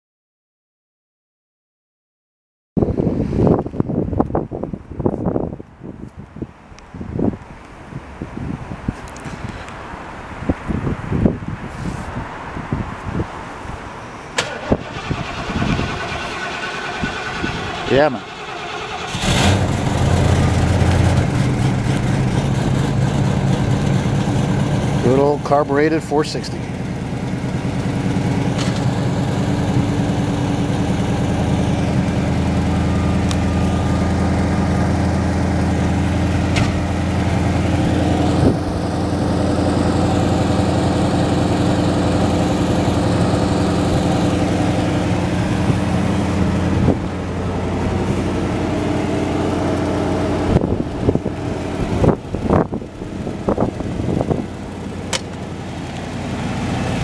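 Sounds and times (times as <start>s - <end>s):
car engine idling: 14.3s - 57.0s.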